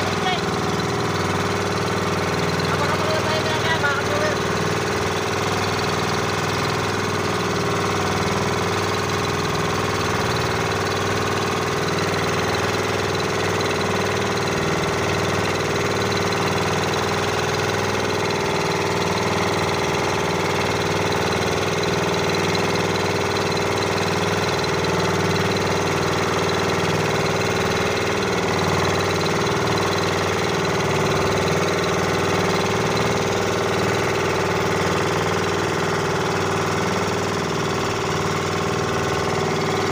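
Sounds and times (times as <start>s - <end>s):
boat engine running: 0.0s - 39.9s.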